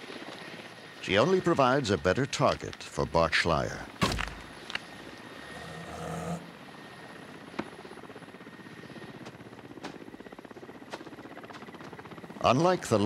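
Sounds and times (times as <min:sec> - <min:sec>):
helicopter rotor throbbing: 0:00.0 - 0:13.0.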